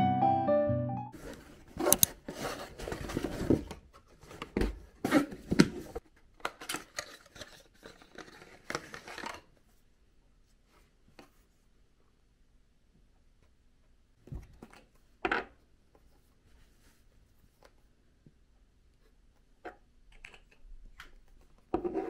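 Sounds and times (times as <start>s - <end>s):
handling small carton: 1.2s - 9.6s.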